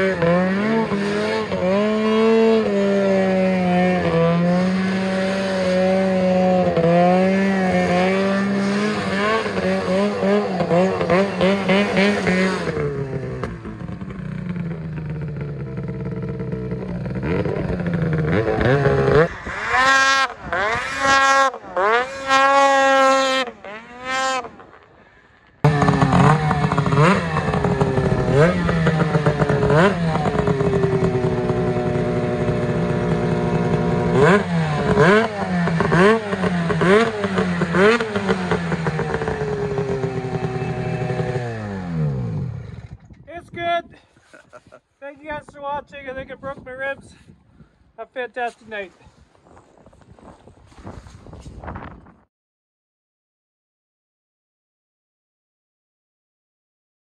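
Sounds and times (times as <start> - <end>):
snowmobile engine revving: 0.0 - 47.1.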